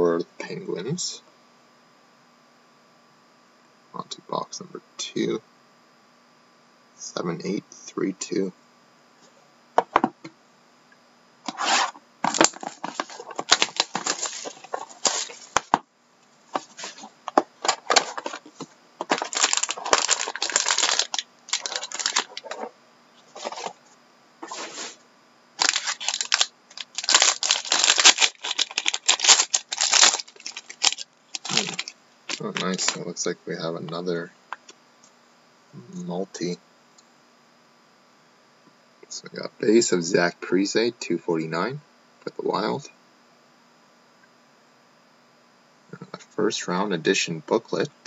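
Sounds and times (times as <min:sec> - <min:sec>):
cardboard box being opened: 0:11.5 - 0:15.7, 0:19.1 - 0:22.7
foil wrapper crinkling and tearing: 0:11.5 - 0:15.8, 0:16.6 - 0:22.7, 0:25.6 - 0:33.0.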